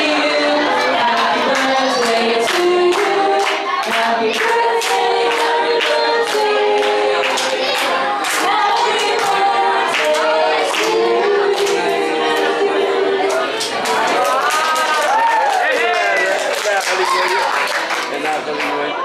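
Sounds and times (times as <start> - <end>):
women singing in harmony: 0.0 - 14.7.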